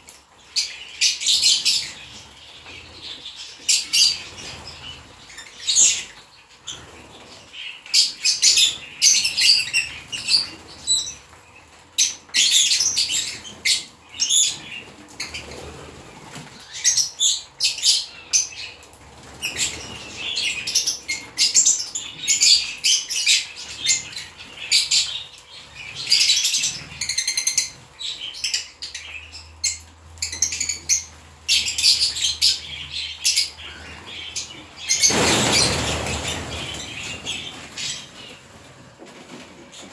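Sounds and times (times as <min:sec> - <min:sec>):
birds chirping and chattering: 0:00.0 - 0:39.9
wings flapping: 0:34.7 - 0:39.9.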